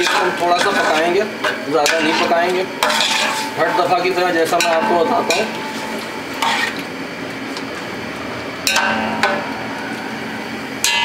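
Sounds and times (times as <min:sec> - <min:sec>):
metallic ringing: 0:01.8 - 0:06.0, 0:08.6 - 0:11.0.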